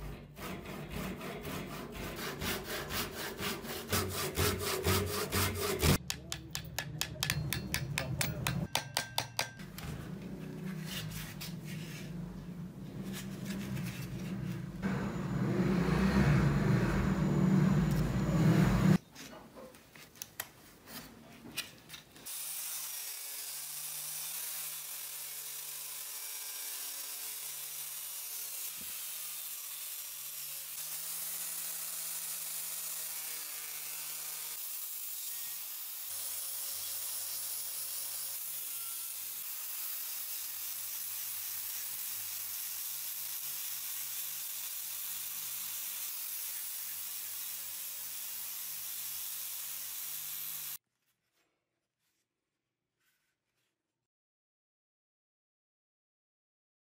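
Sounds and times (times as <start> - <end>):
angle grinder sanding wood: 0.3 - 6.0, 13.0 - 19.0, 38.4 - 50.8.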